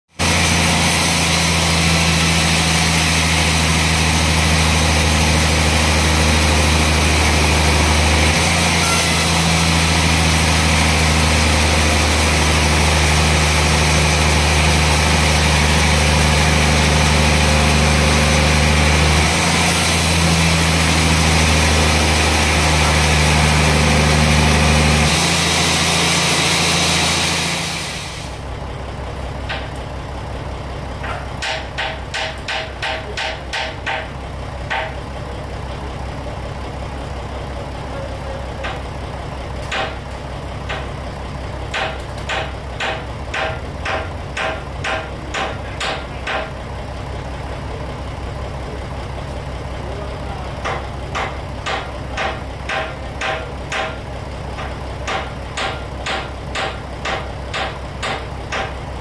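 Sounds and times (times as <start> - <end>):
sawmill machine drone: 0.1 - 59.0
band saw cutting log: 0.2 - 28.4, 50.6 - 58.8.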